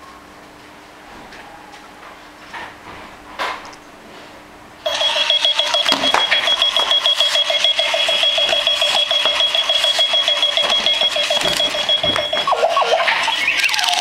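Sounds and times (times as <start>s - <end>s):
high electronic alarm tone: 4.8s - 14.0s
clock rolling knocks: 4.9s - 12.5s
rapid repeating chirps: 4.9s - 14.0s.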